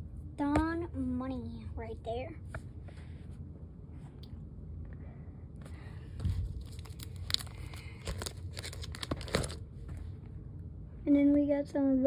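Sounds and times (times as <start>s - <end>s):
plastic pages crinkling: 6.3s - 9.6s.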